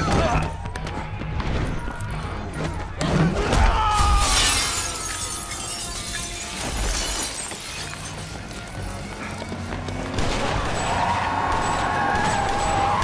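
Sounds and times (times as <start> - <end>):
glass pane shattering: 4.0 - 8.2
glass shards scattering on floor: 4.2 - 8.3.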